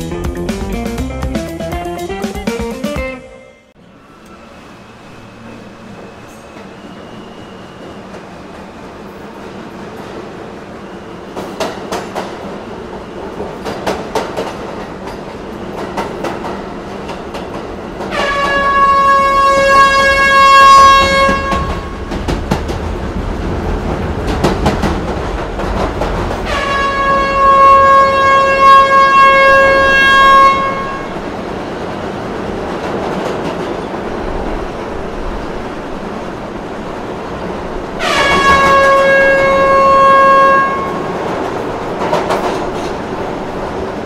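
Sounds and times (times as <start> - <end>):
train and platform noise: 0.0 - 44.0
train horn blasts: 18.1 - 22.1, 26.5 - 31.2, 38.0 - 41.2.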